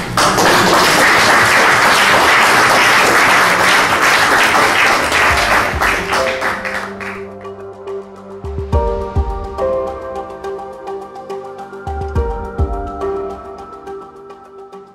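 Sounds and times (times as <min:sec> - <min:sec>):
audience applauding: 0:00.0 - 0:07.4
background music with sustained notes: 0:01.9 - 0:14.9.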